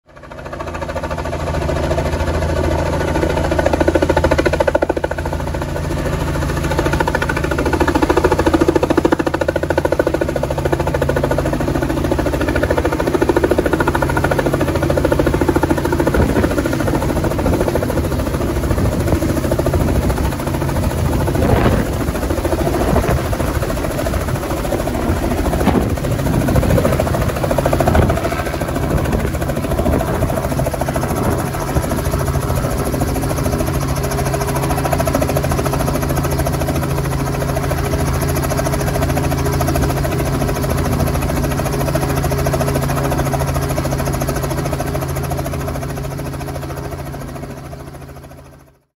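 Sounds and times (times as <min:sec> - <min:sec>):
helicopter rotor beating: 0:00.1 - 0:48.8
piston engine drone: 0:13.0 - 0:34.8.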